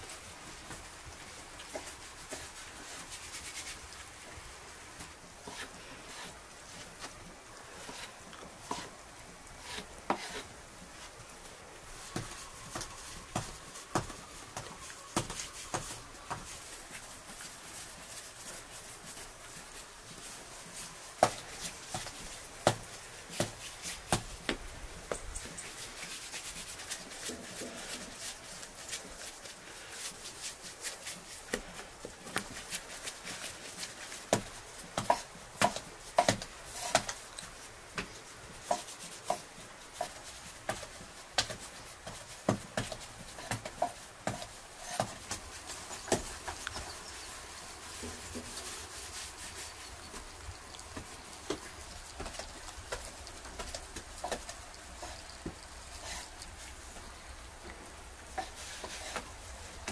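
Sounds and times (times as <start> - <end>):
hands rubbing dough: 0.0 - 59.9
dough patting on wooden board: 21.1 - 25.2, 33.7 - 37.2.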